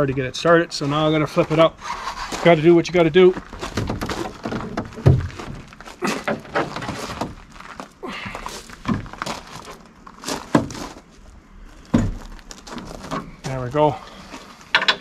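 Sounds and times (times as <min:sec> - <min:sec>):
tractor roll bar clunking: 0:03.0 - 0:07.4, 0:14.5 - 0:15.0.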